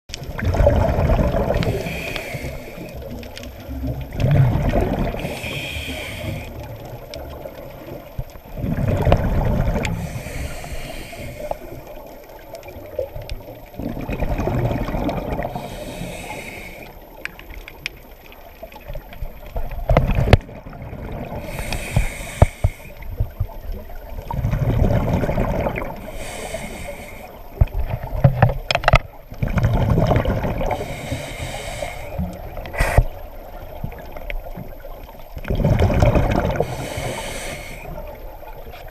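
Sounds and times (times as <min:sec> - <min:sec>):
exhaled bubbles gurgling: 0:00.1 - 0:38.9
regulator inhale hiss: 0:01.6 - 0:03.2, 0:05.1 - 0:06.9, 0:09.8 - 0:12.0, 0:15.4 - 0:17.2, 0:21.4 - 0:23.2, 0:25.9 - 0:27.6, 0:30.6 - 0:33.3, 0:36.6 - 0:38.2.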